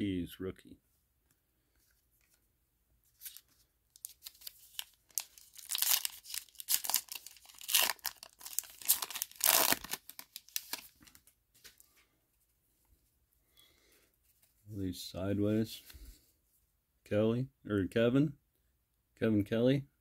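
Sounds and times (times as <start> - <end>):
wrapper tearing and crinkling: 3.2 - 11.3.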